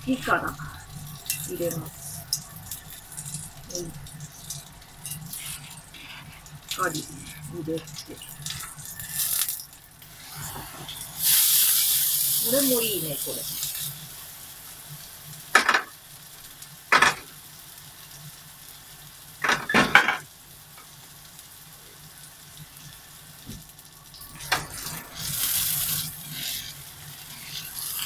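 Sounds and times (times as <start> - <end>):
food sizzling in frying pan: 0.0 - 28.0
pan scraping on burner: 5.0 - 7.5, 24.4 - 28.0.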